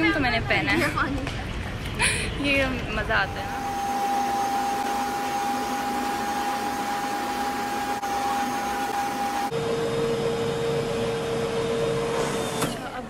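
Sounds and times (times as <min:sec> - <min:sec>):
hair dryer running: 0:03.1 - 0:13.0.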